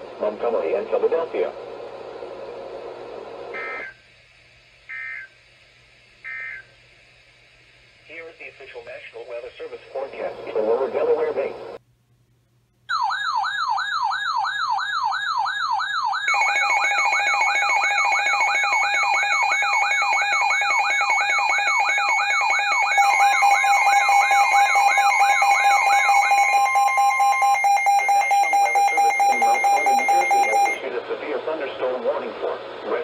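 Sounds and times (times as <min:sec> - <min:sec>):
warbling siren: 0:12.9 - 0:30.8
rapid high beeping: 0:16.2 - 0:30.8
steady alert tones: 0:16.2 - 0:30.8.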